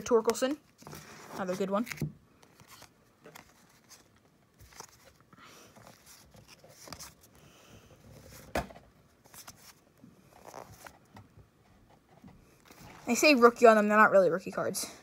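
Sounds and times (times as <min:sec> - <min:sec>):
cards clicking and rustling: 0:00.1 - 0:07.4.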